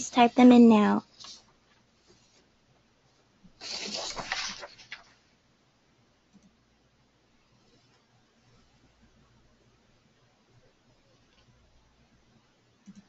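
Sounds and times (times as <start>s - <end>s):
brief rustling: 3.6s - 5.2s.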